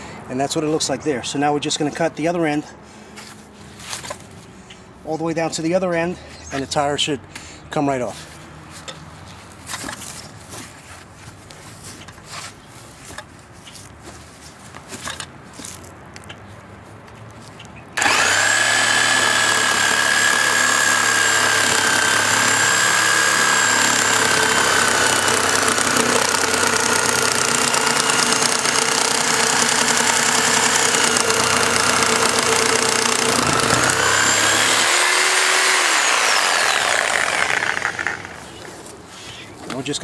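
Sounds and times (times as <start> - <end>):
reciprocating saw cutting tire: 18.0 - 38.9.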